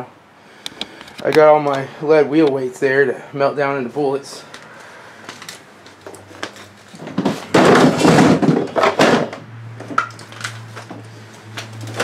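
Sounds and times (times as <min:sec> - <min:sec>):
scraping rattling clatter: 0:06.9 - 0:11.0.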